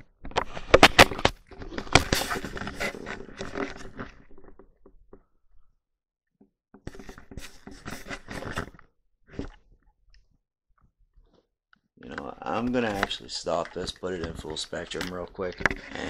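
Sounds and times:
rubbing and scraping: 0:00.4 - 0:04.6, 0:06.9 - 0:09.6, 0:12.0 - 0:16.0.

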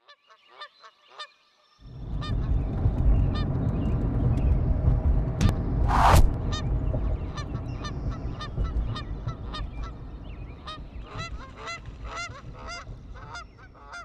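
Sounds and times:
low rumble: 0:01.8 - 0:13.6
short loud whoosh: 0:05.8 - 0:06.4
geese honking: 0:06.5 - 0:14.0.

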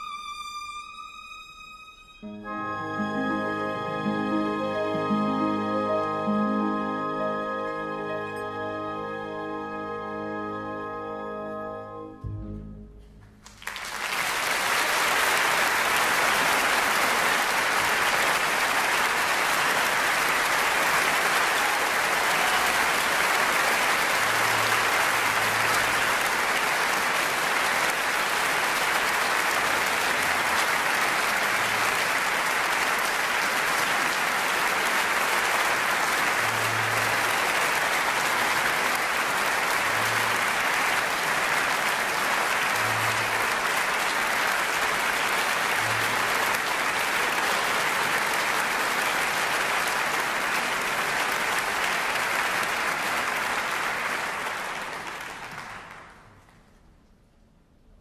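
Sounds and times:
music note ringing: 0:11.5 - 0:13.4
audience applause: 0:13.2 - 0:56.8.

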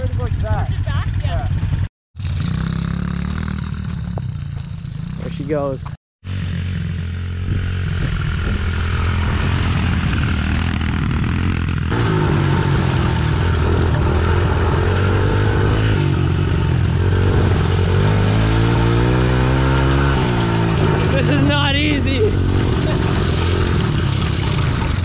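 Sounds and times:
motorcycle engine droning: 0:00.0 - 0:25.0
motorcycle engine revving: 0:00.0 - 0:25.0.

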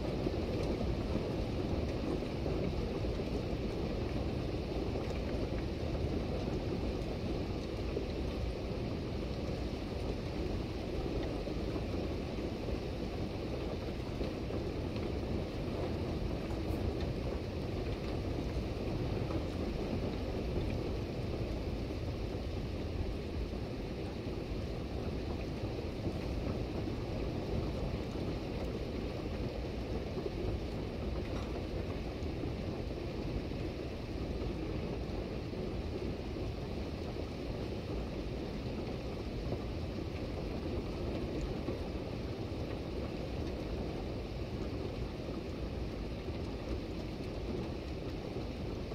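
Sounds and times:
steady rain falling: 0:00.0 - 0:48.9
wind rumbling on microphone: 0:00.0 - 0:48.9.

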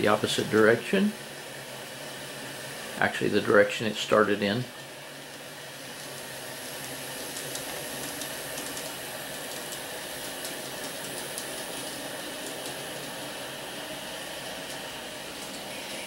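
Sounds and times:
model train running on track: 0:06.0 - 0:16.0.

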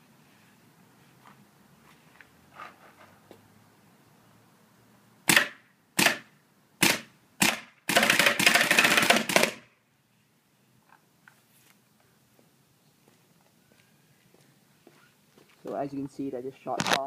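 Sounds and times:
paintball marker shots: 0:05.3 - 0:09.6.

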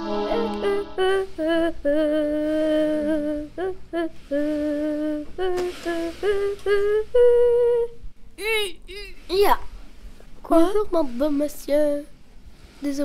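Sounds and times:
person humming a slow tune: 0:00.0 - 0:08.0.

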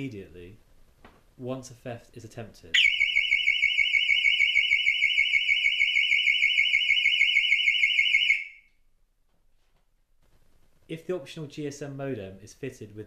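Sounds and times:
warbling alarm siren: 0:02.8 - 0:08.7.

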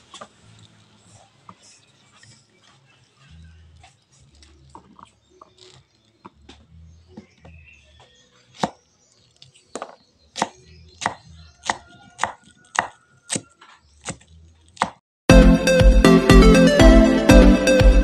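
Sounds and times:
loud electronic music: 0:15.3 - 0:18.0.

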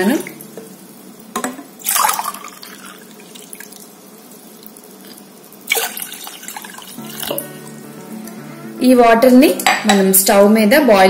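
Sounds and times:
water pouring into saucepan: 0:00.0 - 0:07.8.

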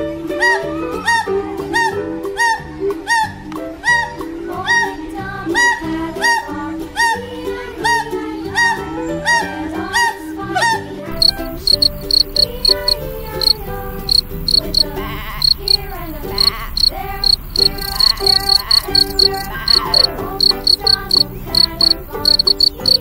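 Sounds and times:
soft background music: 0:00.0 - 0:23.0
cricket chirping: 0:11.1 - 0:23.0.

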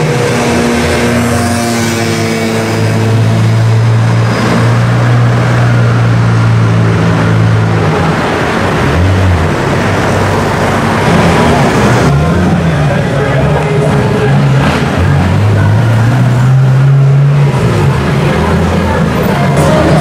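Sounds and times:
car engine driving off: 0:00.0 - 0:20.0.

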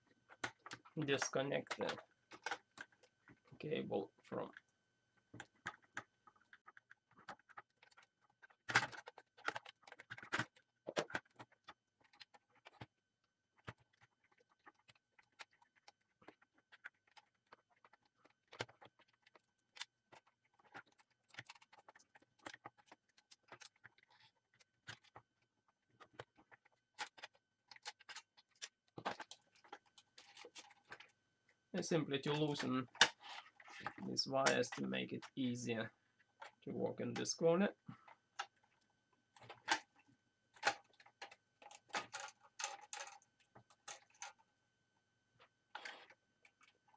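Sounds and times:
plastic printer parts clicking: 0:05.4 - 0:31.1, 0:40.6 - 0:44.4.

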